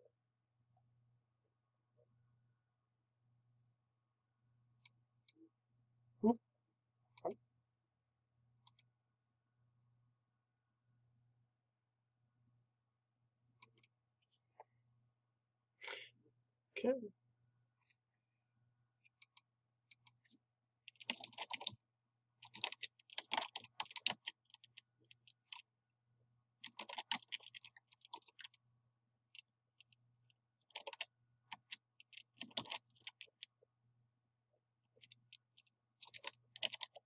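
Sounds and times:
computer keyboard typing: 20.9 - 21.8, 22.4 - 25.6, 26.6 - 28.6, 30.7 - 33.5, 35.0 - 37.0.

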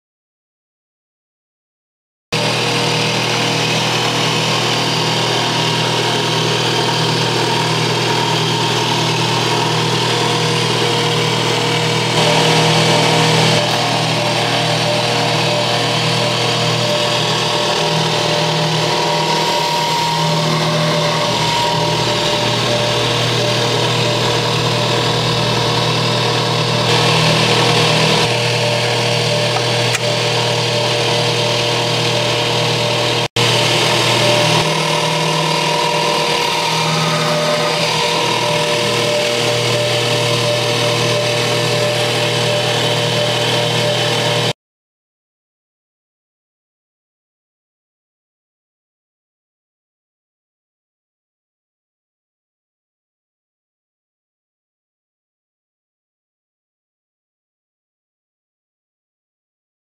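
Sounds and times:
electric motor humming: 2.4 - 44.5.

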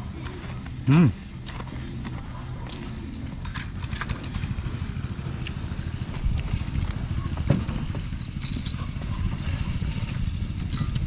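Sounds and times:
wind buffeting microphone: 5.7 - 11.0.

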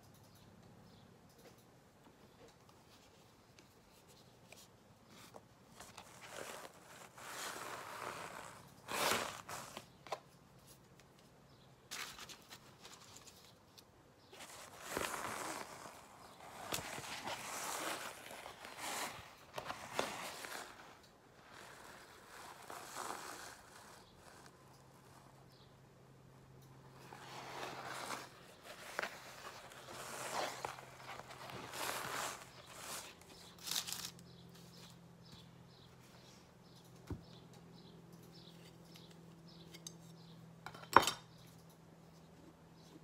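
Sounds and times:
paper rustling and crinkling: 5.2 - 10.2, 11.9 - 13.6, 14.4 - 24.5, 27.0 - 34.9.

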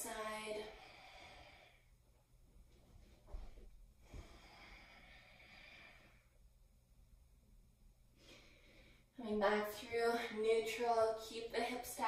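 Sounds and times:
faint breathing: 0.6 - 2.0, 3.2 - 6.4, 8.1 - 9.2.

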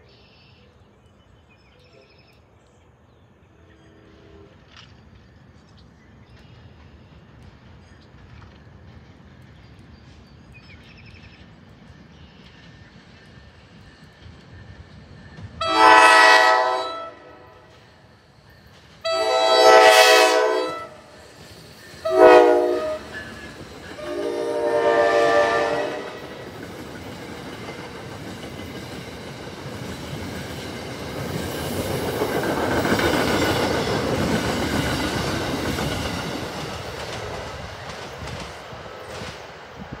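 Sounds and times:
train horn blasts: 3.7 - 4.8, 15.6 - 17.7, 19.0 - 21.2, 22.0 - 23.3, 24.0 - 26.3
train wheels clacking on rails: 6.3 - 16.4, 17.0 - 40.0.

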